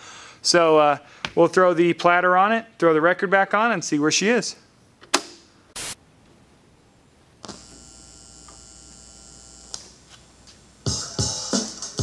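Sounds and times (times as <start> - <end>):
electrical hum: 5.8 - 11.0
music from vinyl record: 10.8 - 12.0.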